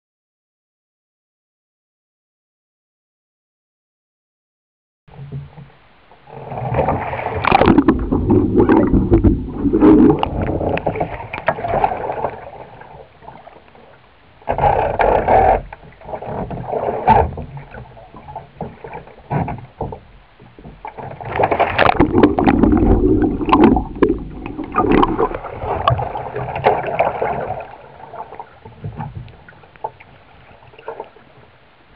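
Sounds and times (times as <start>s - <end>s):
water splashing around kayak: 5.1s - 31.9s
water lapping: 5.6s - 31.9s.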